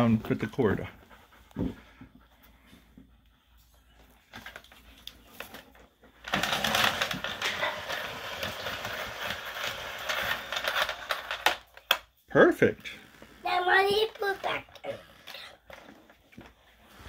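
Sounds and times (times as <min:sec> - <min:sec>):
vacuum cord rewinding: 0:06.2 - 0:12.0.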